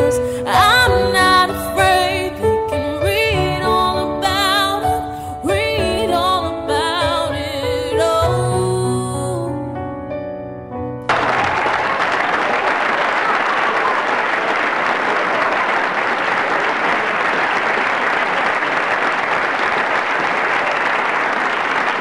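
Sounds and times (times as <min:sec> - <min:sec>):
music: 0:00.0 - 0:11.1
audience applauding: 0:11.1 - 0:22.0.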